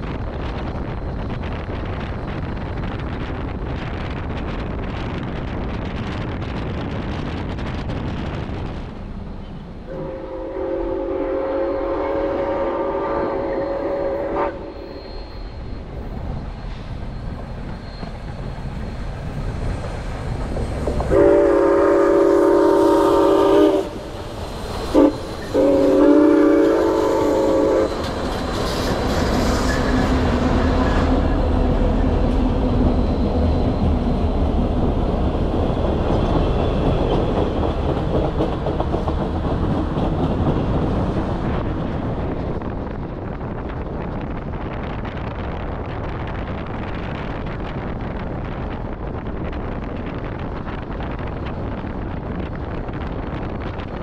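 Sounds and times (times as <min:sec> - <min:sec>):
train rumble and wheel clatter: 0:00.0 - 0:54.0
wind on microphone: 0:00.0 - 0:54.0
steam locomotive chime whistle: 0:09.4 - 0:16.3, 0:17.1 - 0:19.0, 0:21.1 - 0:31.4.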